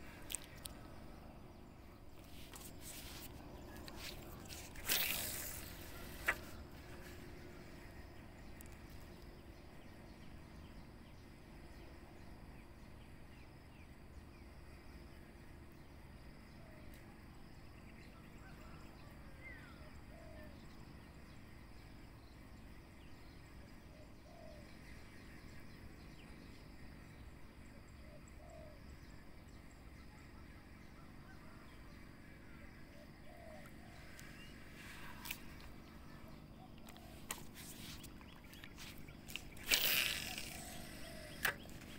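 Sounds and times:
faint bird calls: 0:27.8 - 0:41.9.

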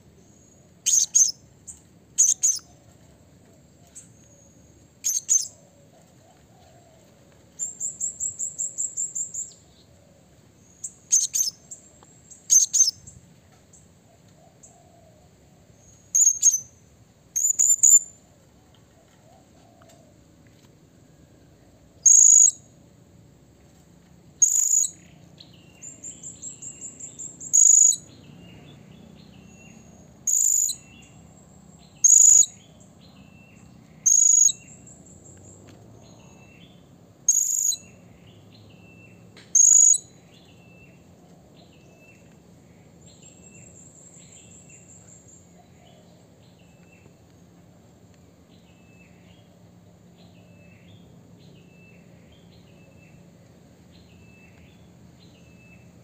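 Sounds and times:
soft high chirps: 0:00.3 - 0:02.7, 0:05.0 - 0:05.6, 0:10.8 - 0:13.2, 0:15.9 - 0:18.2, 0:22.0 - 0:22.7, 0:24.4 - 0:25.1, 0:25.7 - 0:28.7, 0:29.5 - 0:36.6, 0:37.3 - 0:38.0, 0:39.1 - 0:41.0
parrot high-pitched calls: 0:00.8 - 0:01.4, 0:02.2 - 0:02.6, 0:05.0 - 0:05.5, 0:24.4 - 0:25.0, 0:30.2 - 0:30.8
parrot trill: 0:00.8 - 0:01.4, 0:02.2 - 0:02.7.

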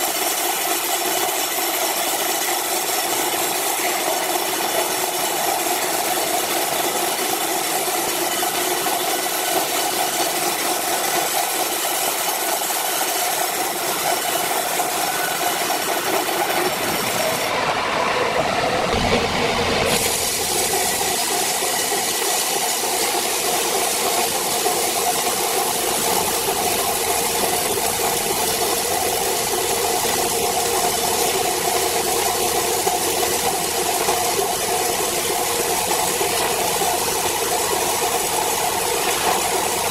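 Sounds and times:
band saw cutting wooden boards: 0:00.0 - 0:39.9
low thump: 0:18.8 - 0:20.7.

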